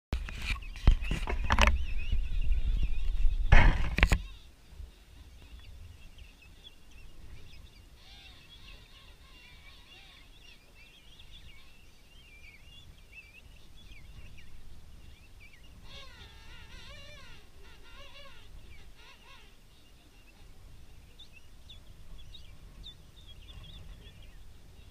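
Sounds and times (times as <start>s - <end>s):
rumble and knocks on microphone: 0.2s - 4.3s
penguins trumpeting calls: 15.8s - 19.6s.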